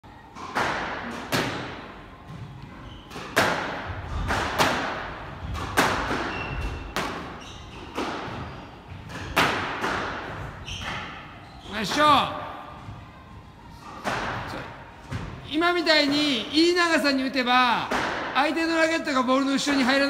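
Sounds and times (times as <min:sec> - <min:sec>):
ball hitting walls: 0:00.4 - 0:02.4, 0:03.1 - 0:11.1, 0:17.8 - 0:18.4
squash racket hitting ball: 0:00.4 - 0:11.4, 0:14.0 - 0:15.4, 0:17.8 - 0:18.7.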